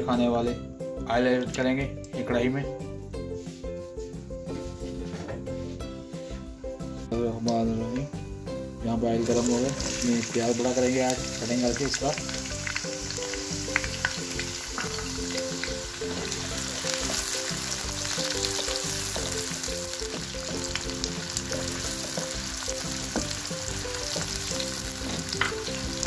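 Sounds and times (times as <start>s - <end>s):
onions sizzling in hot oil: 7.7s - 26.0s
wooden spatula stirring: 13.4s - 26.0s.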